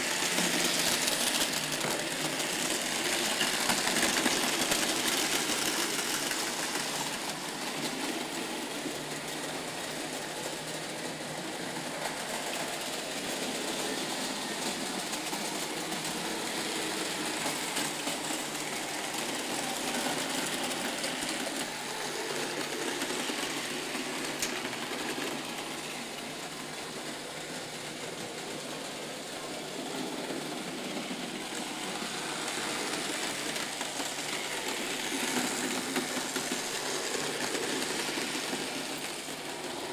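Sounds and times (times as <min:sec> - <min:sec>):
model trains whirring on metal track: 0:00.0 - 0:39.9.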